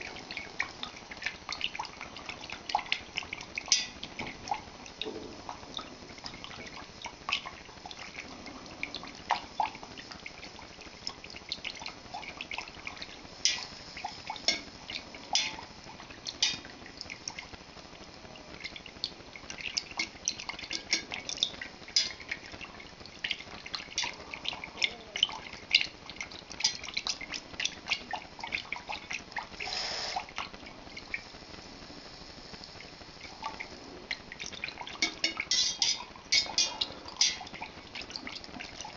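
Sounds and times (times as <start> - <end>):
whisk clicking against metal pot: 0.3 - 4.6, 11.4 - 15.7, 16.3 - 16.7, 19.6 - 22.5, 34.4 - 38.8
liquid sloshing: 33.2 - 38.9.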